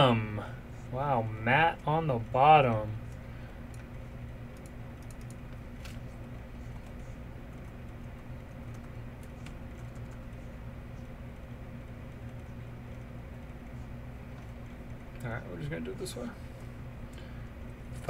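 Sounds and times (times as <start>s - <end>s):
steady low hum: 0.0s - 18.0s
computer keyboard typing: 3.1s - 10.5s.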